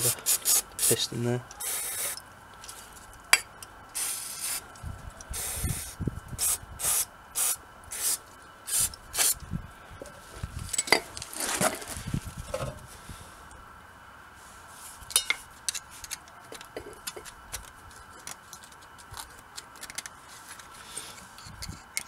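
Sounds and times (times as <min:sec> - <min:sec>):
aerosol spray hissing: 0:00.0 - 0:01.0, 0:01.6 - 0:02.2, 0:04.0 - 0:04.6, 0:05.3 - 0:09.4.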